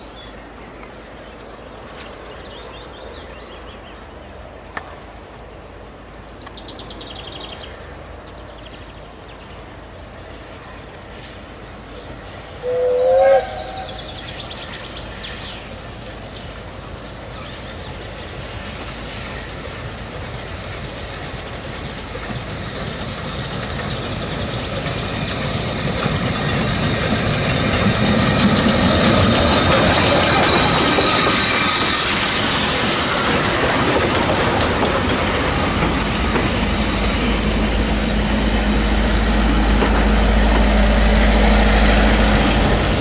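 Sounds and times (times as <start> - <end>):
steam hiss: 9.7 - 43.0
train wheel clatter: 10.3 - 43.0
steam locomotive whistle: 12.6 - 14.3.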